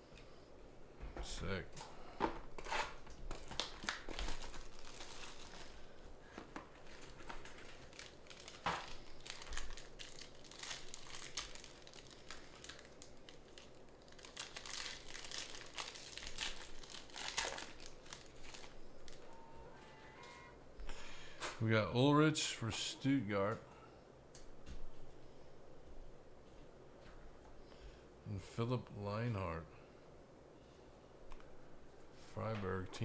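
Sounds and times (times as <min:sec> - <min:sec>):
foil wrapper crinkling: 0:02.6 - 0:19.3.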